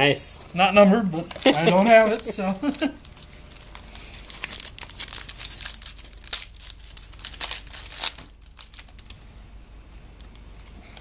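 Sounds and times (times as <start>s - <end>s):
wrapper tearing and crinkling: 1.2s - 9.3s.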